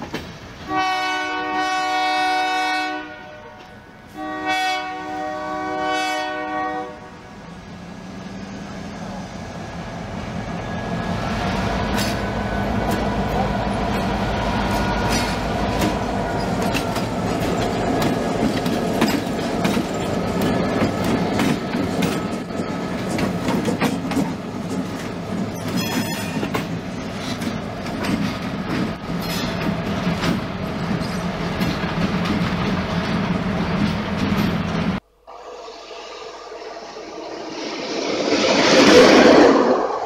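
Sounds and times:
train wheels clicking over rails: 0.0 - 0.7, 10.3 - 35.0.

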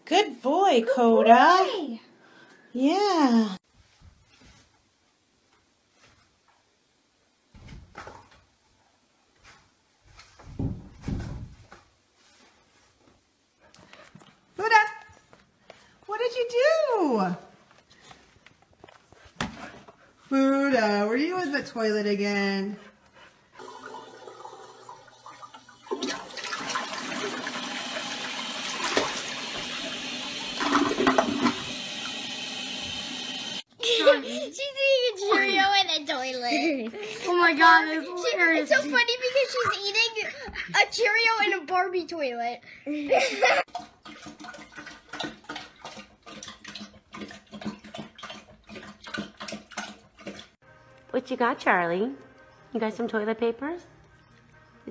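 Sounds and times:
toilet flushing: 23.6 - 33.7, 43.6 - 50.6
dog lapping water: 43.7 - 50.6.

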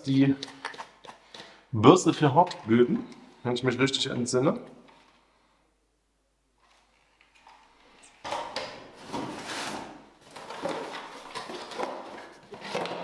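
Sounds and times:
cardboard box scraping and rustling: 9.0 - 13.0.

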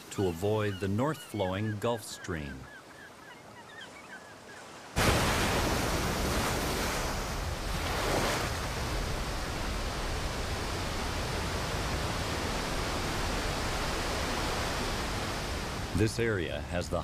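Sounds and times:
heavy waves breaking: 4.4 - 17.0.

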